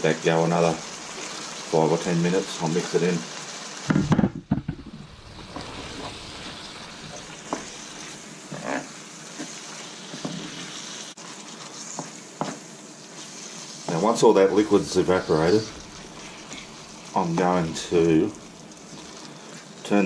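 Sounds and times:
curry sizzling in a frying pan: 0.0s - 20.0s
wooden spoon scraping a pan: 5.4s - 20.0s.

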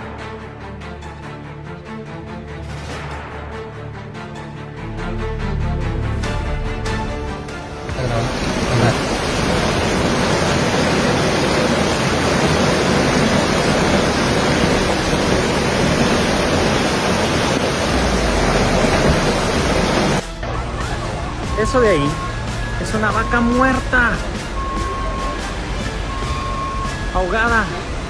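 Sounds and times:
torrential rain: 5.0s - 28.0s
floodwater rushing: 6.3s - 28.0s.

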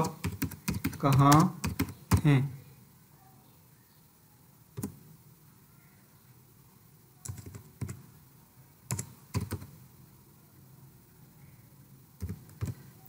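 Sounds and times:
computer keyboard taps: 0.0s - 2.3s, 4.8s - 5.0s, 12.2s - 12.8s.

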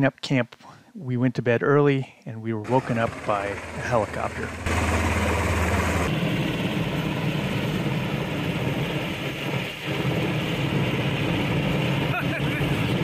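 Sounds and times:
helicopter hovering overhead: 2.6s - 13.0s.

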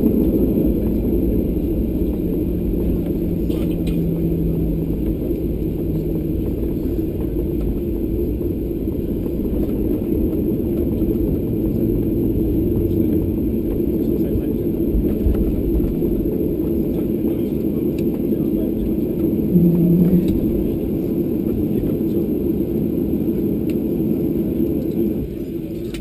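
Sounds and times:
low hum: 0.0s - 14.0s, 19.3s - 22.2s
jet engines idling: 0.0s - 26.0s.

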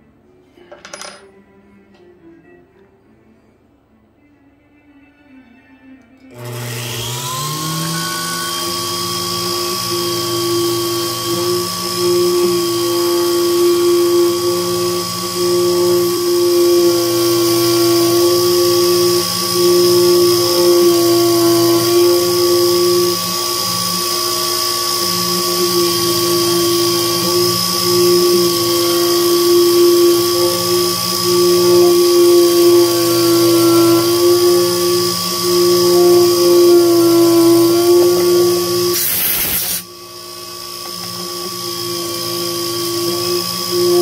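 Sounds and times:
milling machine spindle whine: 6.3s - 44.0s.

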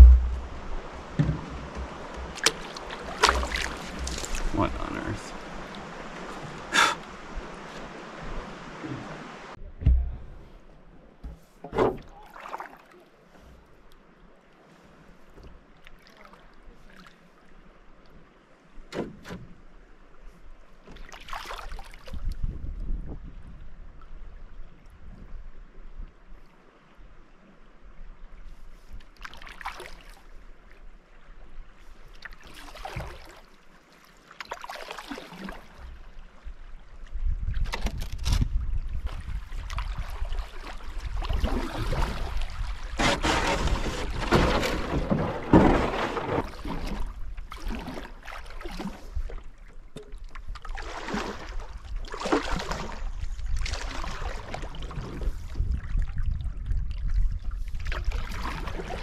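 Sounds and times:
wind rumble on microphone: 0.0s - 2.4s, 22.0s - 26.4s, 35.8s - 45.6s, 51.4s - 59.0s
rush of water: 0.0s - 10.7s, 11.6s - 25.4s, 26.1s - 59.0s
paddle splashing water: 0.0s - 22.6s, 28.4s - 59.0s.

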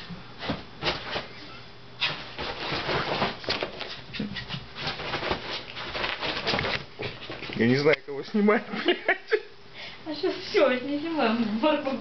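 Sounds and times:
dog and cat scuffling: 0.0s - 7.9s.

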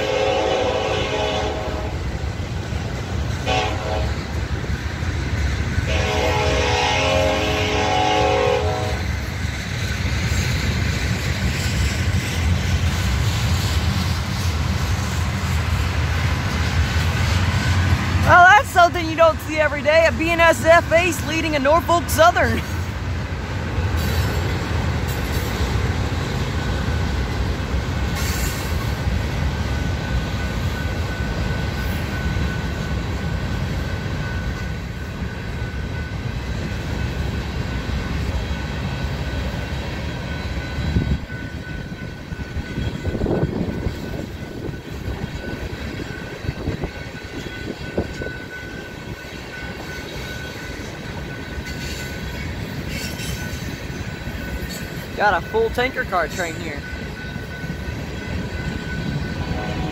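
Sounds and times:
train cars clanking: 0.0s - 59.9s
train wheels rumbling on rail: 0.0s - 59.9s
high whine: 59.4s - 59.9s.

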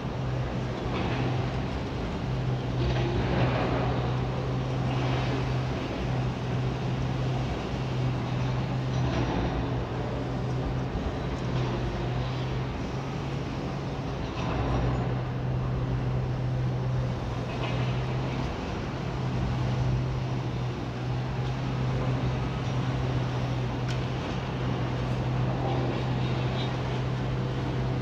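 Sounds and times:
diesel machinery engine drone: 0.0s - 28.0s.

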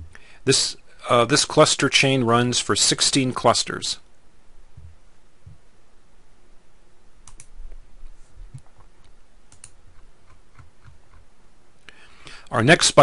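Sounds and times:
low background hiss: 0.0s - 13.0s
faint keyboard clicks: 7.2s - 7.5s, 8.5s - 11.2s.

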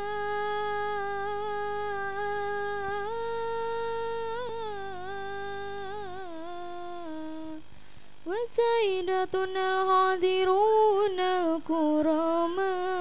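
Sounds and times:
high voice chanting: 0.0s - 7.6s
low electrical hum: 0.0s - 13.0s.

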